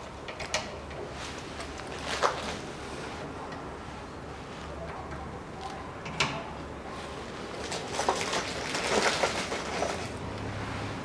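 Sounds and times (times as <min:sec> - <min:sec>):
rustling and small clinks: 0:07.5 - 0:10.2.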